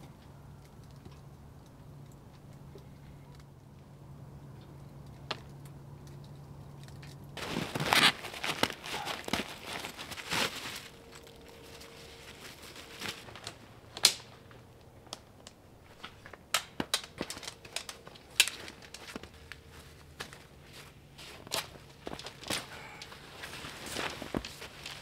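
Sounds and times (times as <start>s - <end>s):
tent fabric rustling: 7.4s - 13.7s, 18.4s - 25.0s.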